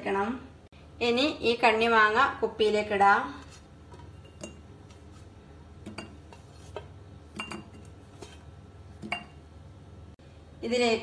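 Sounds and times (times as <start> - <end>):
fruit clinking into glass jar: 7.3 - 7.9.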